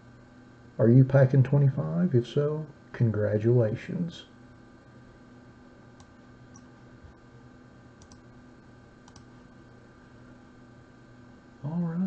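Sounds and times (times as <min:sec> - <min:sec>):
faint electrical hum: 0:00.0 - 0:12.0
computer mouse clicks: 0:06.0 - 0:06.7, 0:08.0 - 0:08.2, 0:09.0 - 0:09.3.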